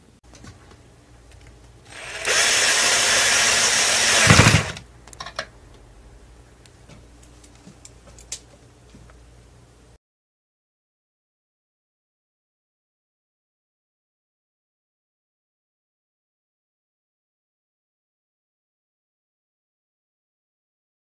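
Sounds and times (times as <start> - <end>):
cordless drill spinning: 1.9 - 4.8.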